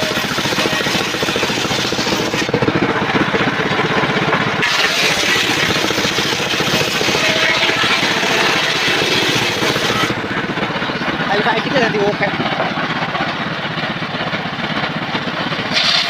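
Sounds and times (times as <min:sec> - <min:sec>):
table saw motor running: 0:00.0 - 0:12.4, 0:15.7 - 0:16.0
saw blade hissing in wood: 0:04.6 - 0:06.4, 0:15.7 - 0:16.0.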